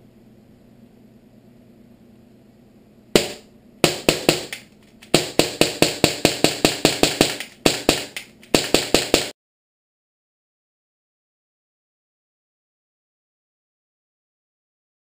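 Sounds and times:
pistol shots: 3.2 - 9.3.

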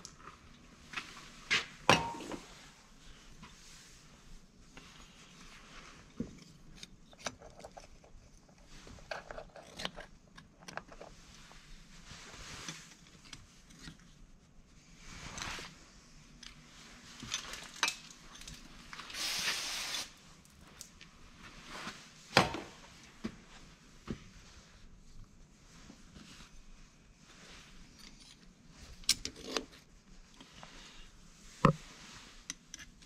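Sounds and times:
brief hiss: 19.1 - 20.2.

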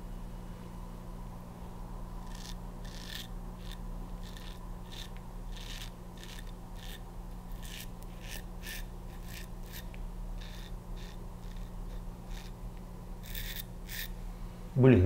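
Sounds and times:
razor scraping stubble: 2.2 - 14.2.

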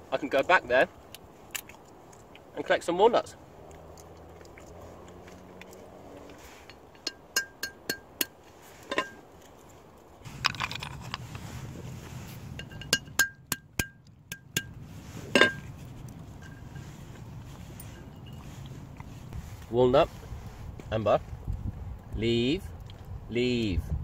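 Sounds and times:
hatchet cracking nuts on iron pot: 6.7 - 9.2, 12.6 - 15.6.

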